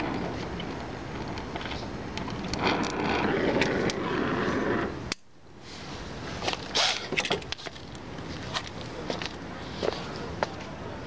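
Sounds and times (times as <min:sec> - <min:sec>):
welding torch flame hissing: 0:02.4 - 0:04.9.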